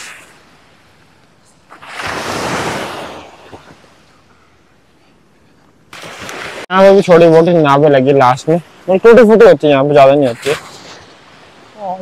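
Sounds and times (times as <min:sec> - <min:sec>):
sea wave breaking on beach: 0:01.7 - 0:03.9, 0:05.9 - 0:06.7.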